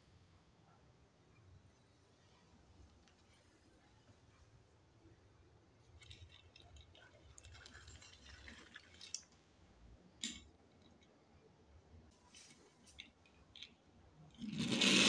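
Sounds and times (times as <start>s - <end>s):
toy truck clicking and scraping: 6.0s - 9.3s, 12.9s - 15.0s.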